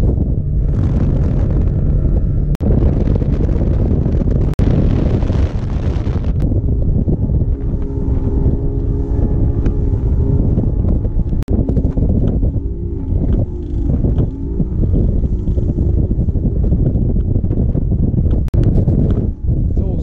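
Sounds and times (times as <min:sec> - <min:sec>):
boat motor running: 0:00.0 - 0:20.0
wind buffeting microphone: 0:00.0 - 0:20.0.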